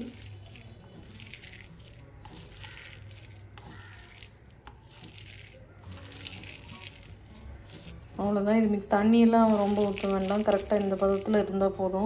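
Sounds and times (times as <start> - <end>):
hand mixing cabbage in a bowl: 0.0 - 12.0.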